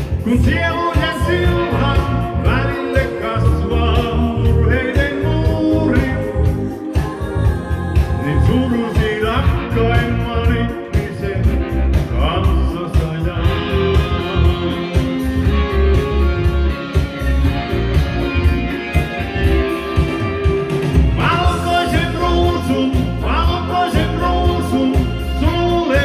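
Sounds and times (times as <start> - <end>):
man singing into a microphone: 0.0 - 7.3, 7.9 - 15.1, 21.2 - 26.0
karaoke backing track: 0.0 - 26.0.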